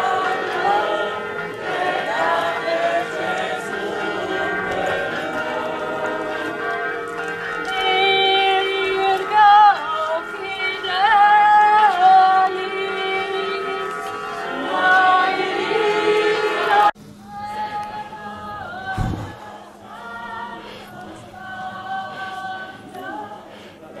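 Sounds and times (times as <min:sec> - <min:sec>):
people singing a hymn: 0:00.0 - 0:24.0
low rumble: 0:18.9 - 0:19.4.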